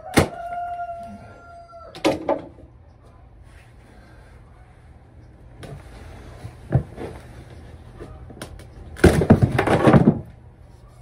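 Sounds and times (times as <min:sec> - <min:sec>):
board cracking and clattering: 0:08.4 - 0:10.4
wooden floorboard being pried up: 0:09.0 - 0:10.3.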